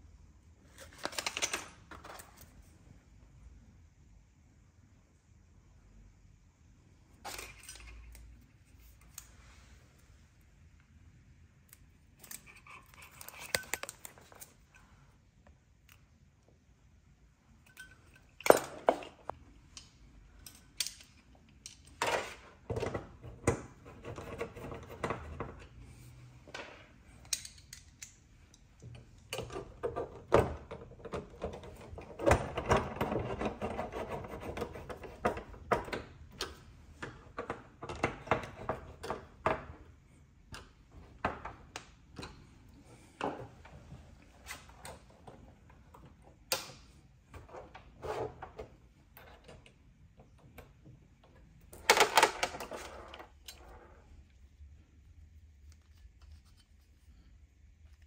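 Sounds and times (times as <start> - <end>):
screwdriver scraping and grinding: 7.3 - 9.3, 12.2 - 14.9, 31.4 - 35.7.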